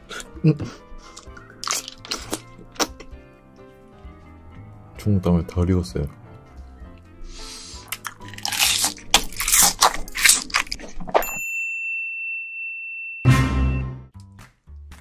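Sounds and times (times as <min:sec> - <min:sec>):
wet chewing and slurping: 0:01.0 - 0:03.1, 0:07.4 - 0:11.3
high beep tone: 0:13.2 - 0:14.0.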